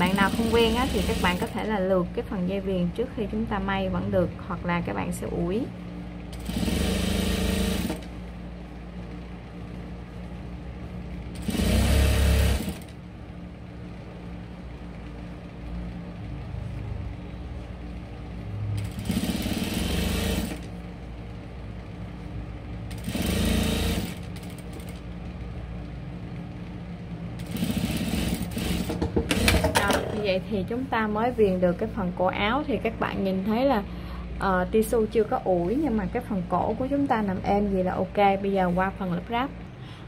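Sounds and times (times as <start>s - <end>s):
sewing machine motor humming: 0.0s - 1.6s, 6.3s - 8.2s, 11.3s - 13.0s, 18.8s - 20.8s, 22.9s - 25.1s, 27.4s - 29.9s
sewing machine stitching: 0.0s - 1.6s, 6.3s - 8.1s, 11.3s - 13.0s, 18.8s - 20.7s, 22.9s - 25.0s, 27.4s - 30.1s.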